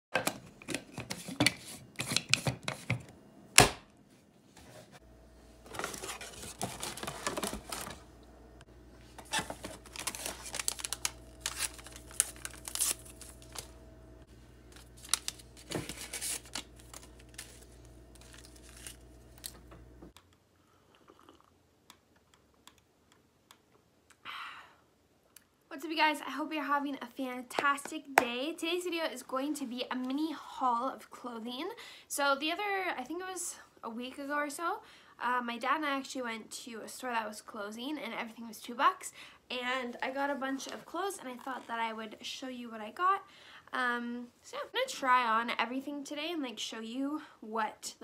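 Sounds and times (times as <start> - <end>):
low steady hum: 0.2 - 21.5
rustling and clicking handling noise: 5.6 - 8.0, 9.0 - 13.7, 14.7 - 20.2.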